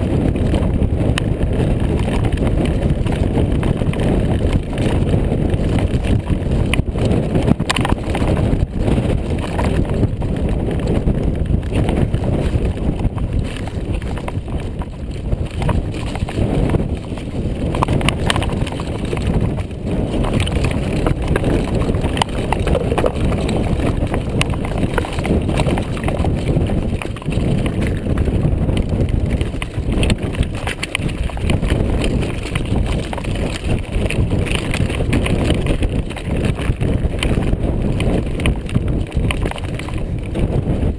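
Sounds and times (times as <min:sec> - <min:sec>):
mountain bike rattling over rocks: 0:00.0 - 0:40.9
wind rumble on microphone: 0:00.0 - 0:40.9.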